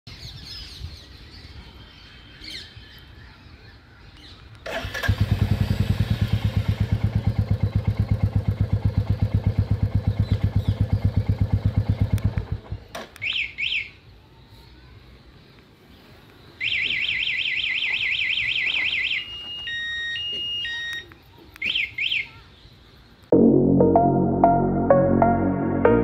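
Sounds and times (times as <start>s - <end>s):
motorcycle engine idling: 4.7s - 12.9s
alarm chirps: 16.6s - 21.1s.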